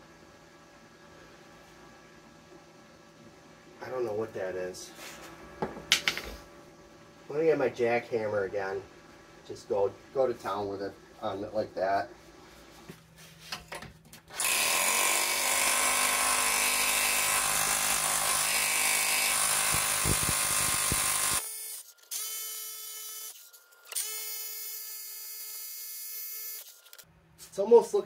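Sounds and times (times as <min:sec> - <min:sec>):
rotary hammer chiseling metal: 0:14.4 - 0:21.4.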